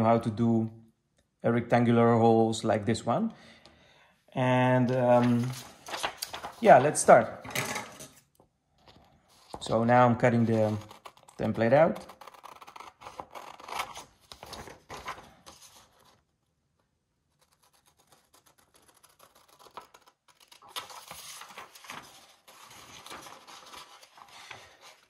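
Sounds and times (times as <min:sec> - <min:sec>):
scissors snipping paper: 0:10.6 - 0:14.0.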